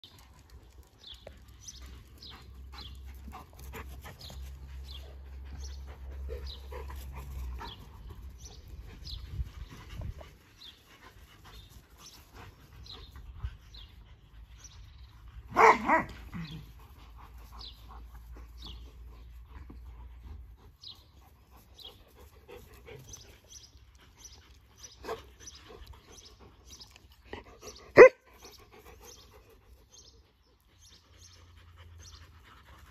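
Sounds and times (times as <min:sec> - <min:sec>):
dogs playing: 0:00.1 - 0:32.9
dog barking: 0:15.5 - 0:16.1, 0:28.0 - 0:28.2.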